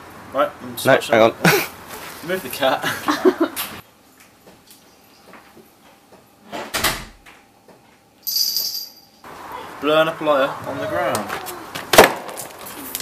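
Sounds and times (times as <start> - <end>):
door shutting with a thud: 6.5 - 7.3.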